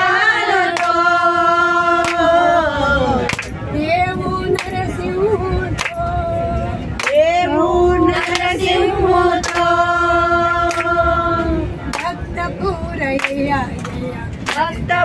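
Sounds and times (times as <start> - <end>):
women singing together: 0.0 - 13.8, 14.5 - 15.0
hand claps: 3.3 - 3.6, 4.5 - 4.8, 5.8 - 6.0, 7.0 - 7.2, 9.4 - 9.7, 10.7 - 10.9, 13.2 - 14.7.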